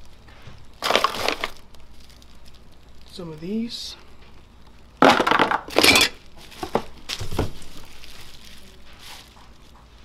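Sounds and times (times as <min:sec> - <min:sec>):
plastic wrapping crinkling: 0:00.0 - 0:10.0
small hard parts clattering: 0:05.0 - 0:07.7.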